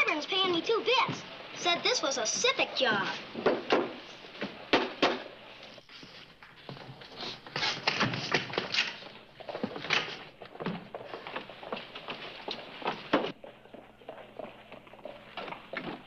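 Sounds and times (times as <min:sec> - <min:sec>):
irregular knocks and thumps: 0:02.2 - 0:05.3.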